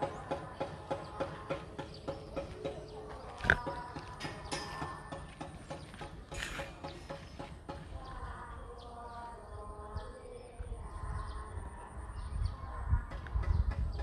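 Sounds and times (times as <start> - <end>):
drawn-out voice chanting: 7.9 - 13.2
wind on microphone: 7.9 - 14.0.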